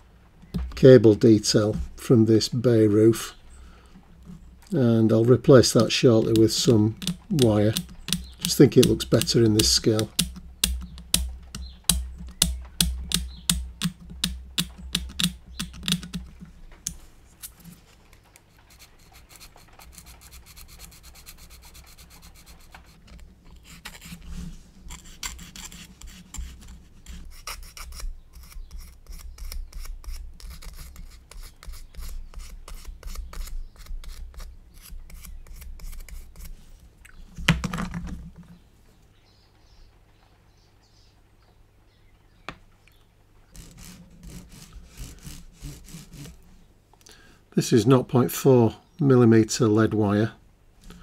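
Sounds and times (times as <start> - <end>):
hand abrading plastic part: 5.7 - 17.0.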